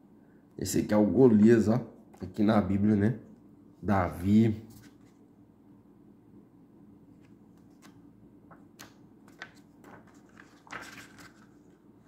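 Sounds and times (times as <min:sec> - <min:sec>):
book pages turning: 0:07.2 - 0:11.9.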